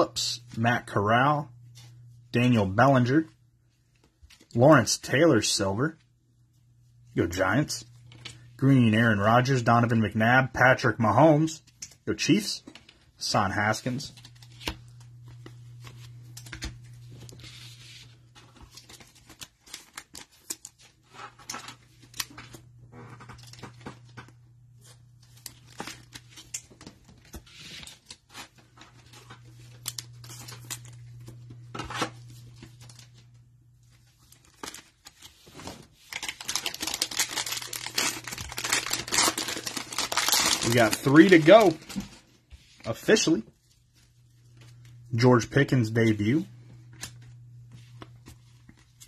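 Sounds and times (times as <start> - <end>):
plastic wrapper tearing and crinkling: 29.7 - 31.2, 34.3 - 35.3, 36.0 - 42.3.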